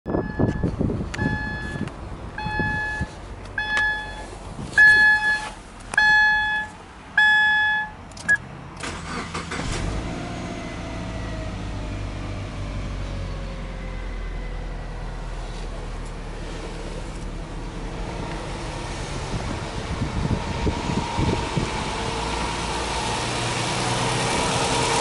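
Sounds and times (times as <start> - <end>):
car warning chime beeping: 0.1 - 8.4
car starter cranking: 8.1 - 10.0
car engine idling: 13.6 - 25.0.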